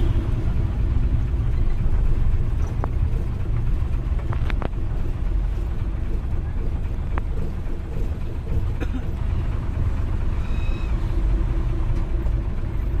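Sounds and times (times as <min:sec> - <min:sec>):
vehicle engines rumbling: 0:00.0 - 0:13.0
short high squeal: 0:10.4 - 0:11.1.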